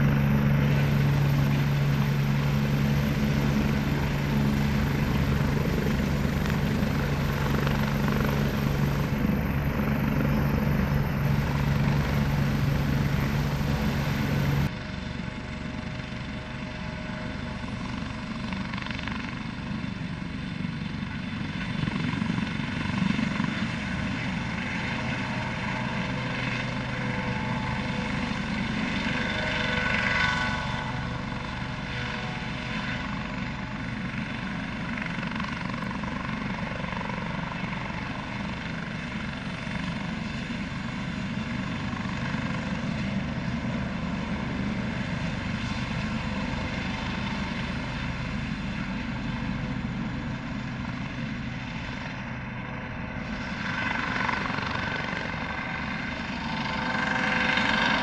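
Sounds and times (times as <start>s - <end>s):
turbine whine: 0.0s - 15.0s
helicopter rotor beat: 0.0s - 58.0s.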